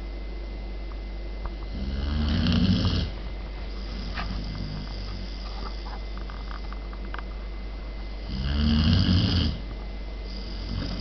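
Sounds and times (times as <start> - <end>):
puppy snoring: 1.7 - 6.7, 8.2 - 11.0.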